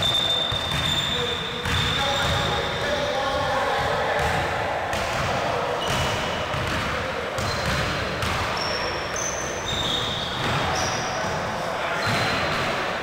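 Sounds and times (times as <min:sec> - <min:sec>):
sneakers squeaking: 0:00.0 - 0:13.0
basketball bouncing on hardwood: 0:05.9 - 0:08.4.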